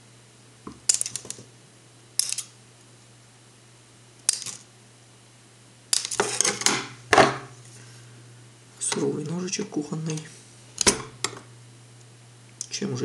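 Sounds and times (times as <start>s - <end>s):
tools clicking and clattering: 0.8s - 1.4s, 2.2s - 2.5s, 4.3s - 4.6s, 5.9s - 6.9s.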